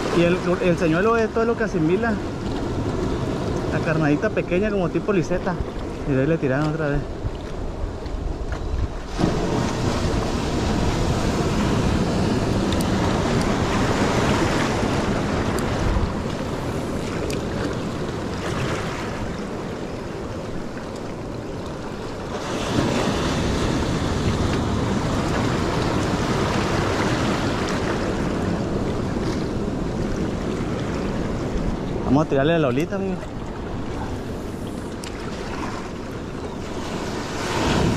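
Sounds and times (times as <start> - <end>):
wind buffeting microphone: 0.0 - 20.7
surf washing around rocks: 0.0 - 37.9.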